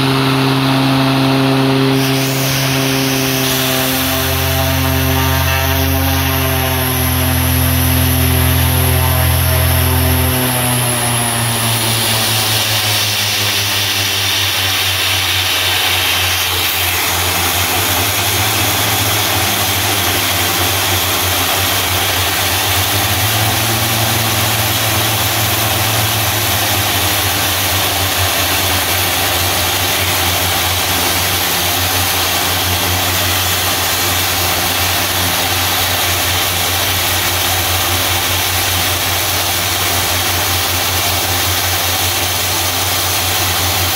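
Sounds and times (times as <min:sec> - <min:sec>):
turboprop engine running: 0:00.0 - 0:43.9.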